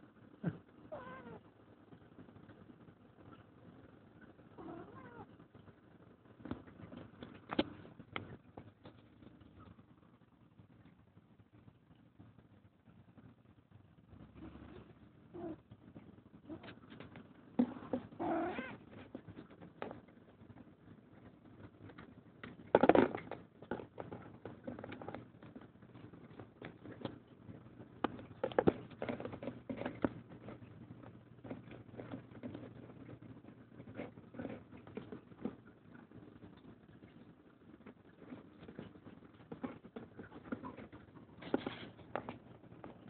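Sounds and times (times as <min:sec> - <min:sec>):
cat meowing: 0:00.9 - 0:01.4, 0:04.6 - 0:05.3, 0:18.2 - 0:18.8.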